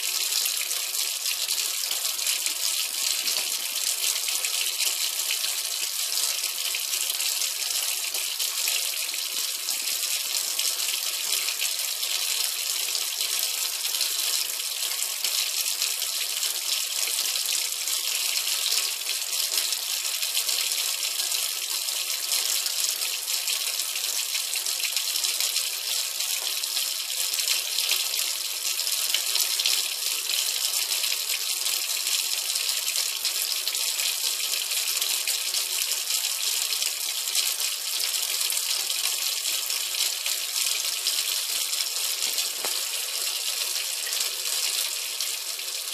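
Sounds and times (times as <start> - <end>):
tap water splashing into steel sink: 42.2 - 44.9.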